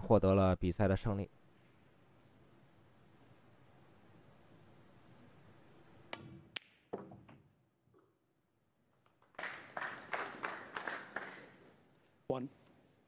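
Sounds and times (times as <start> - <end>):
ball dropping into pocket: 6.1 - 8.1
cue ball strike: 6.1 - 8.1.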